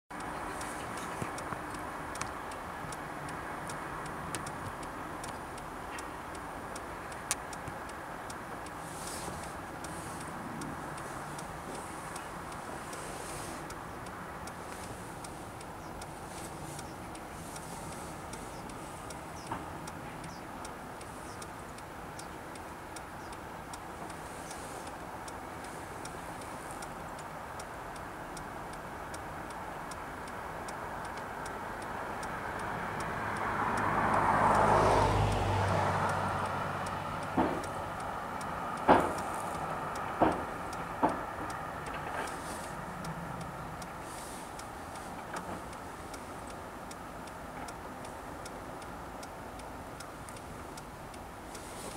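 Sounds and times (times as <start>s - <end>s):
road vehicle passing: 0.1s - 51.9s
steady outdoor hiss: 0.1s - 51.9s.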